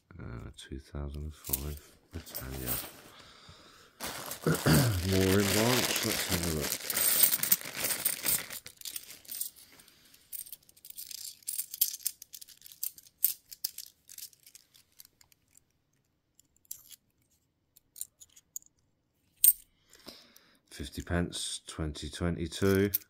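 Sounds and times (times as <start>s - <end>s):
coins clinking: 1.5s - 3.0s, 4.1s - 15.1s.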